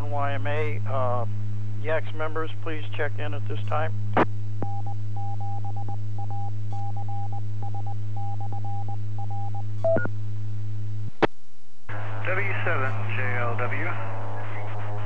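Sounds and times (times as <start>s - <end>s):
steady hum: 0.0s - 15.0s.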